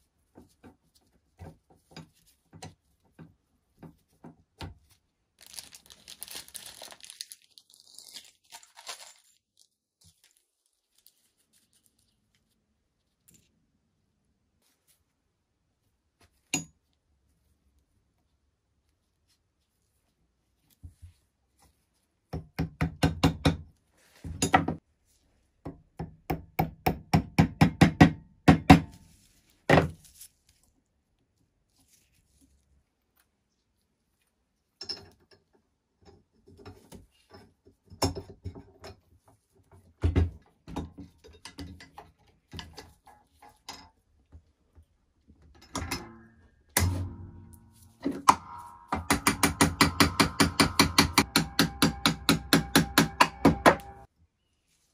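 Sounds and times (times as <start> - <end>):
hard knock: 48.2 - 54.0
hammer tapping a pin: 48.2 - 54.1.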